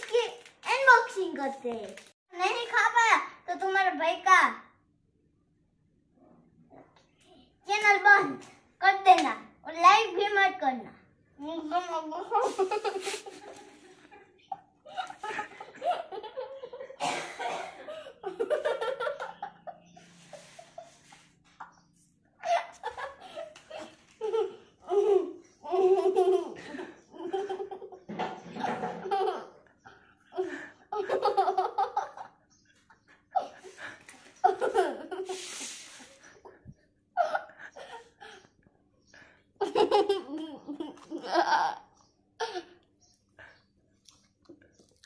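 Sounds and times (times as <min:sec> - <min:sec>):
boy laughing: 0:12.2 - 0:17.0, 0:17.8 - 0:21.8, 0:22.4 - 0:27.9, 0:30.3 - 0:33.8, 0:34.4 - 0:35.8, 0:39.6 - 0:42.7.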